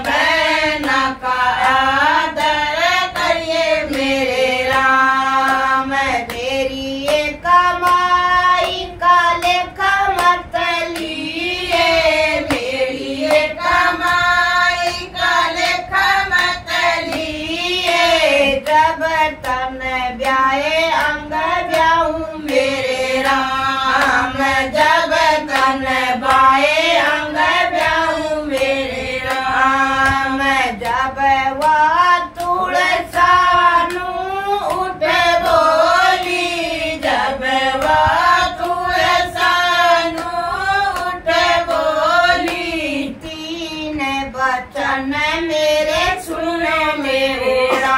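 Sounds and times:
hand claps: 0.0 - 43.5
women singing: 0.0 - 47.9.

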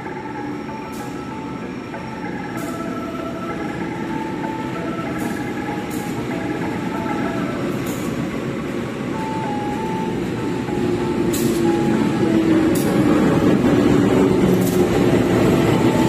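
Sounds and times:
diesel locomotive engine rumbling: 0.0 - 16.0.

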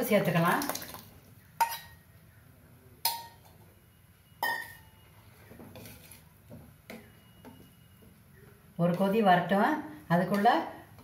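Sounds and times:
ladle clinking on steel pan: 4.4 - 4.9
soft stirring: 4.4 - 11.0.

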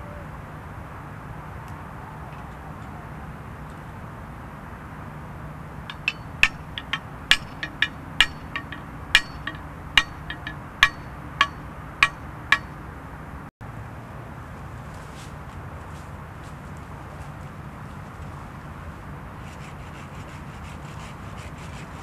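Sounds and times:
steady low hum: 5.3 - 13.5
metallic clinks of hand tool: 5.9 - 12.8.

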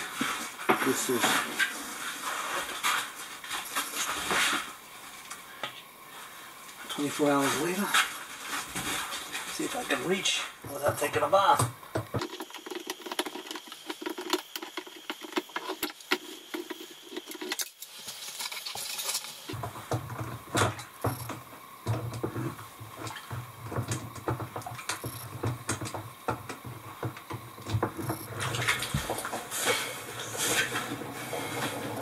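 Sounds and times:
small clicks and knocks: 10.7 - 29.4.

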